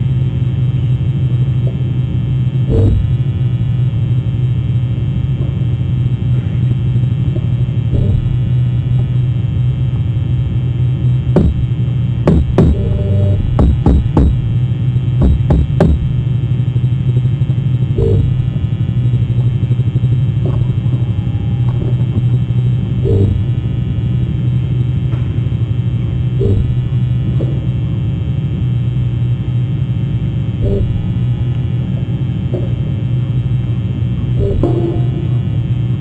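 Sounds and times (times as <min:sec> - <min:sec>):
low electrical hum: 0:00.0 - 0:36.0
knocks: 0:07.9 - 0:08.4, 0:11.4 - 0:14.6, 0:15.2 - 0:16.3.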